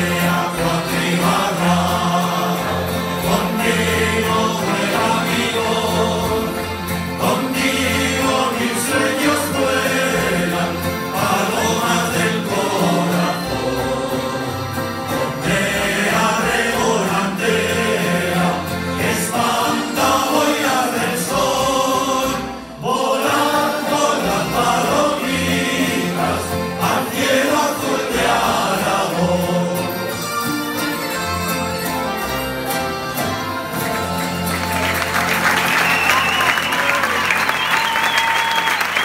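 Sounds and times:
men singing together: 0.0 - 30.2
accordion: 0.0 - 39.0
plucked string instruments: 0.0 - 39.0
audience applause: 33.8 - 39.0.

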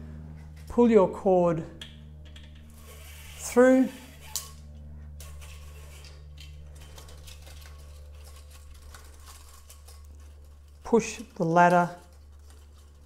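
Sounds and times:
steady low hum: 0.0 - 13.0
blind pull cord clicking: 2.3 - 4.6, 5.2 - 13.0.

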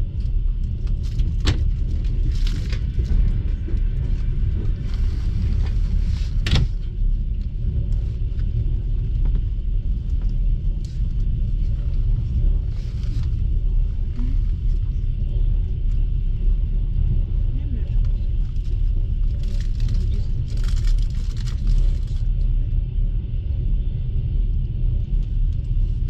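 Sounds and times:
train wheels rumbling on rails: 0.0 - 26.0.

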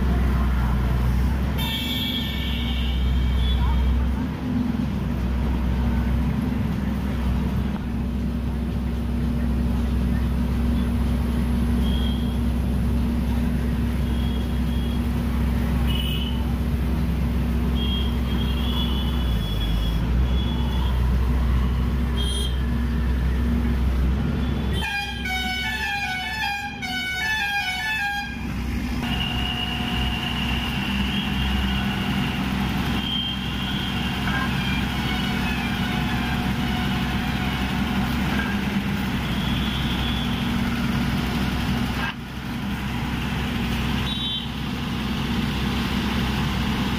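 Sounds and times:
heavy engine running: 0.0 - 46.9
vehicle horns honking: 1.6 - 4.0, 15.8 - 16.4, 17.7 - 21.0, 22.2 - 22.6, 24.5 - 32.3, 32.9 - 37.1, 39.2 - 40.6, 44.0 - 44.6
long horn blasts: 24.7 - 32.1.

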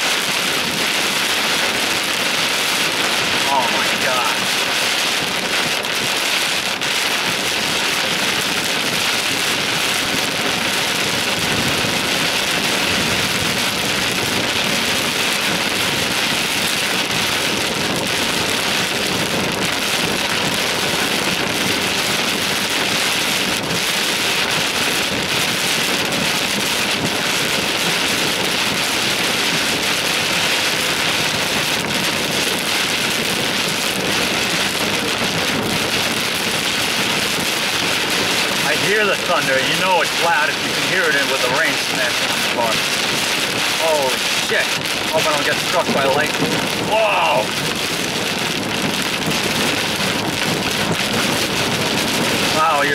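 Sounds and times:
heavy rain on car roof: 0.0 - 52.9.

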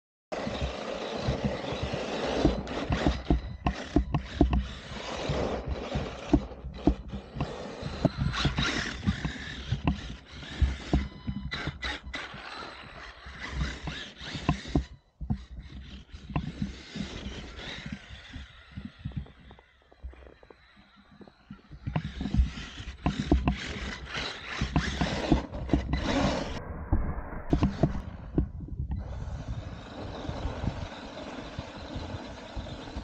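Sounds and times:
toy car chassis knocking: 0.4 - 26.4
tyres crunching through snow: 0.4 - 33.0.

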